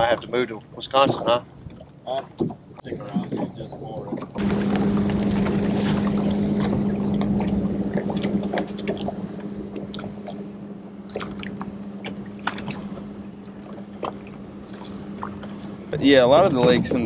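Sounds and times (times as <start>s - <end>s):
water lapping against hull: 0.0s - 17.0s
small splashes: 1.1s - 15.9s
electric trolling motor humming: 4.3s - 17.0s.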